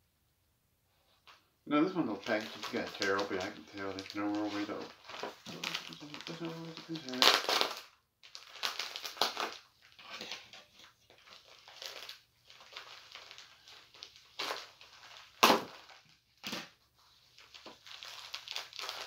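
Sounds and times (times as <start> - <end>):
mailer bag crinkling and ripping: 2.0 - 19.0.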